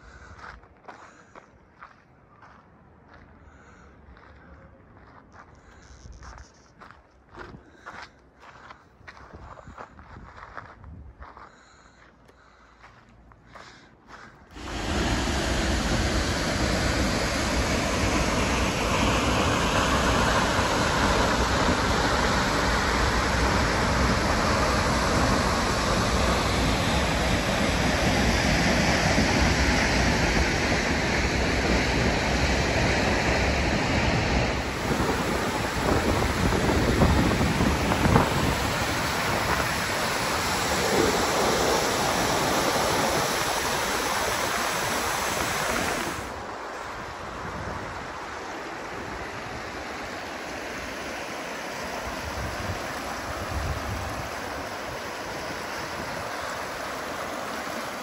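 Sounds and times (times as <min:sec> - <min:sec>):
soft river flow over riffles: 0:14.5 - 0:30.3, 0:34.6 - 0:58.0
waterfall plunging into spray: 0:14.6 - 0:58.0
whitewater rapids: 0:14.6 - 0:58.0.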